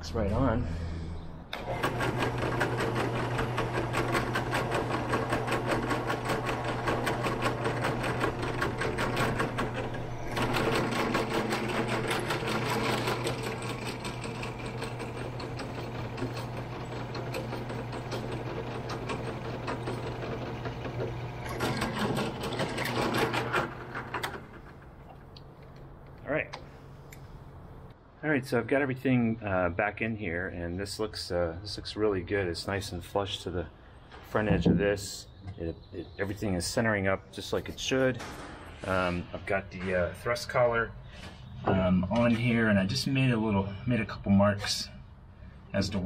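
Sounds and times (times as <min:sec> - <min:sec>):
drill press running: 0:01.4 - 0:25.7.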